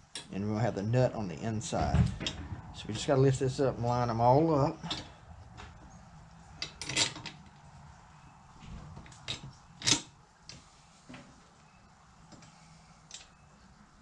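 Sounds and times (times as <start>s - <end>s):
metal parts clinking: 6.6s - 7.4s.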